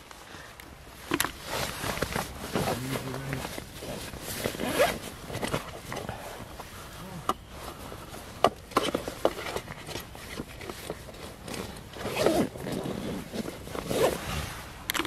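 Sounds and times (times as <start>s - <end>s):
clothing rustling and scraping: 0.0s - 15.0s
zip being worked: 3.8s - 5.0s, 11.4s - 14.6s.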